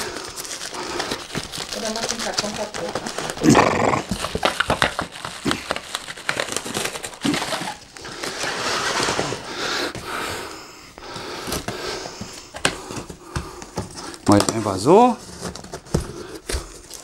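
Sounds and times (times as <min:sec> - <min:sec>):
cardboard scraping and rustling: 0:00.0 - 0:10.0, 0:11.2 - 0:17.0
cardboard knocks and taps: 0:12.2 - 0:14.6.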